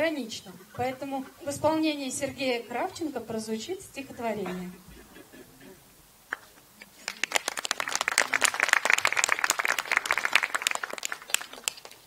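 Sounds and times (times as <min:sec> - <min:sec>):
audience applauding: 0:06.3 - 0:12.0.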